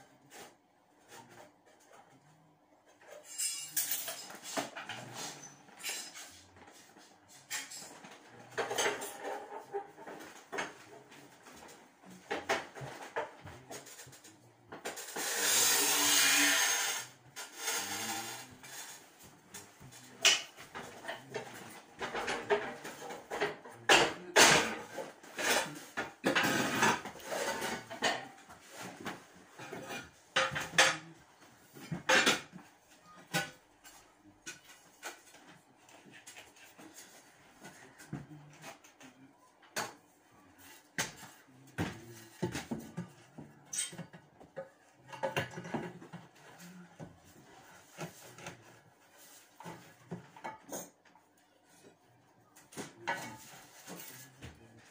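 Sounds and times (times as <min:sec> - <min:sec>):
hand tool scraping a bucket: 0:14.9 - 0:19.0.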